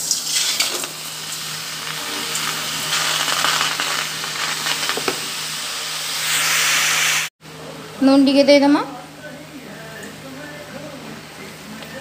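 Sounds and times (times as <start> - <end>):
wet leaves sizzling in a pan: 0.0 - 7.3.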